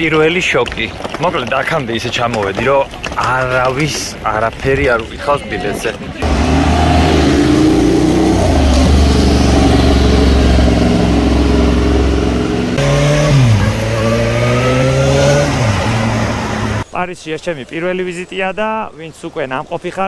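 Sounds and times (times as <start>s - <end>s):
vehicle engine accelerating: 6.2s - 16.8s.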